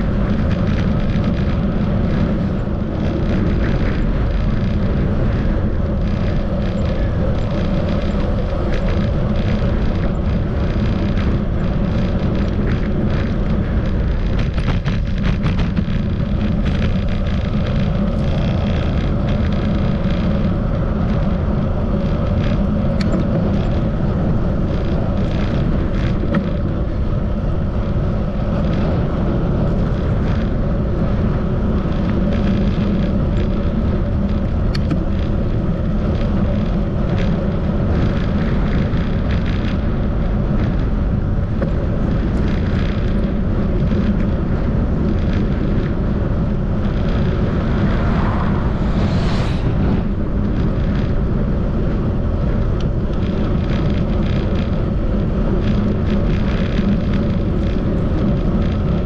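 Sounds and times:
bicycle tyre noise: 0:00.0 - 0:59.0
wind rumble on microphone: 0:00.0 - 0:59.0
rising swish: 0:46.8 - 0:51.4.

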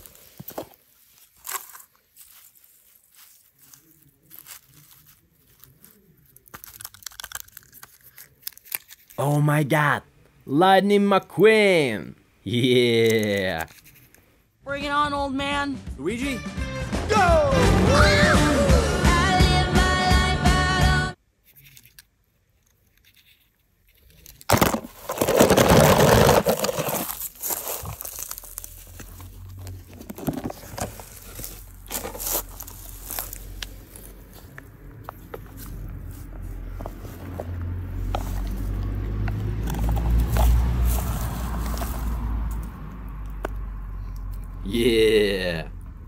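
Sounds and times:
film soundtrack music: 0:15.7 - 0:21.1
toy cars scraping in plastic tub: 0:24.5 - 0:27.3.

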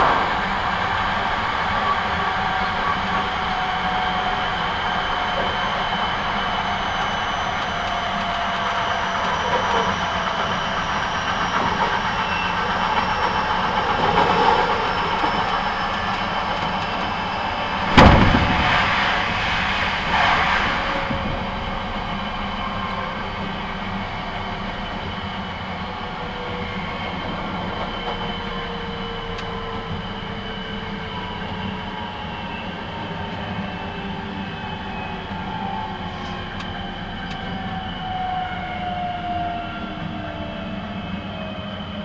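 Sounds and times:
sharp bang: 0:00.0 - 0:01.2, 0:17.8 - 0:21.8
train rumble and rail noise: 0:00.0 - 0:42.0.

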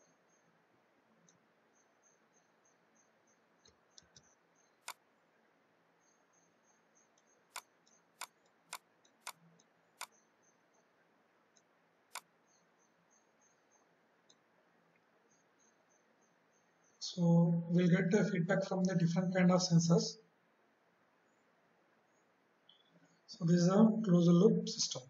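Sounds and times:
faint high chirping: 0:00.0 - 0:25.0
computer mouse clicking: 0:03.6 - 0:05.0, 0:07.1 - 0:10.3, 0:11.5 - 0:12.7.

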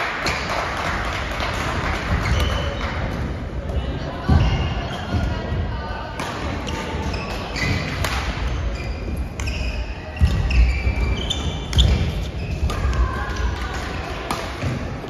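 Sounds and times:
shoe squeaks on court floor: 0:06.7 - 0:12.7
racket hitting shuttlecock: 0:07.6 - 0:08.5, 0:14.2 - 0:14.8.

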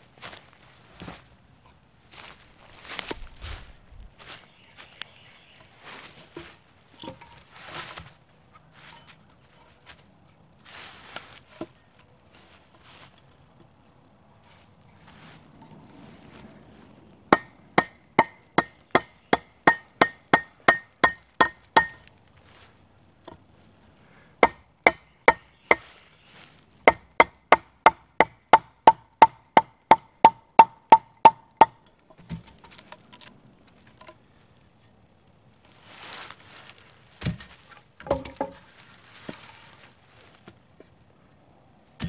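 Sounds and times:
rustling: 0:00.0 - 0:17.3, 0:21.6 - 0:24.4, 0:25.5 - 0:26.9, 0:32.1 - 0:42.0
wooden knocks: 0:37.2 - 0:38.7.

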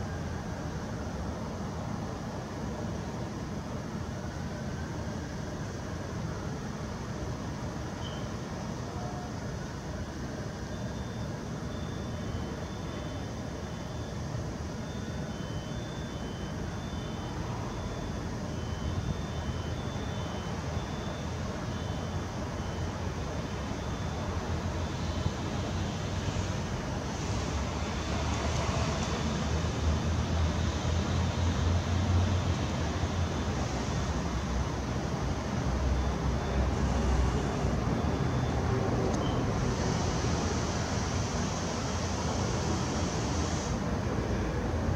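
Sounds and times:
jet airliner engines rumbling: 0:16.5 - 0:44.9.

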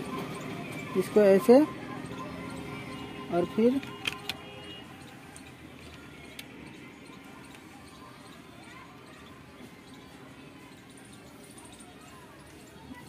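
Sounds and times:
faint background noise: 0:00.0 - 0:13.0.

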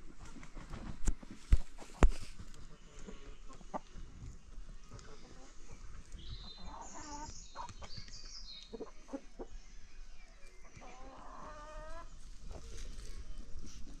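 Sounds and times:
chickens clucking: 0:00.1 - 0:14.0.

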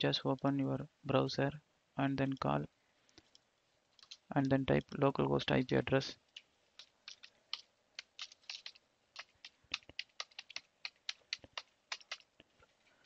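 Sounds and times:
computer keyboard typing: 0:04.0 - 0:04.2, 0:06.4 - 0:12.3.

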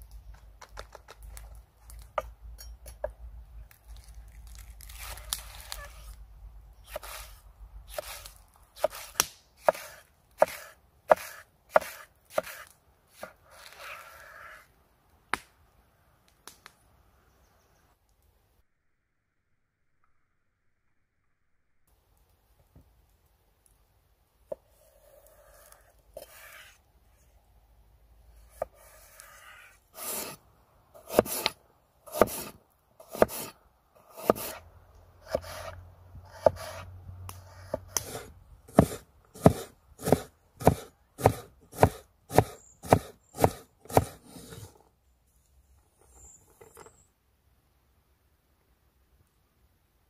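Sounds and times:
knife chopping on wooden board: 0:08.8 - 0:13.4, 0:31.0 - 0:33.5, 0:34.1 - 0:34.6, 0:35.2 - 0:35.7, 0:36.3 - 0:36.8, 0:37.5 - 0:44.6.

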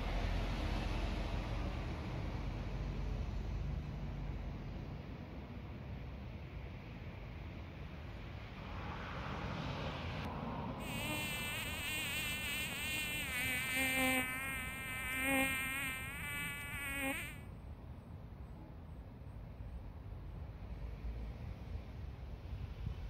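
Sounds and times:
faint outdoor background noise: 0:00.0 - 0:23.0
fly buzzing: 0:10.8 - 0:17.4.

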